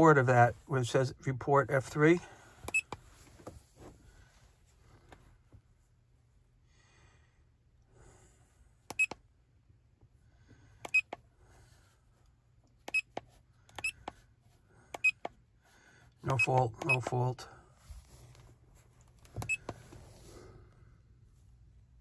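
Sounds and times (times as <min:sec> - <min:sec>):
scanner keypad button clicks: 0:08.9 - 0:09.2.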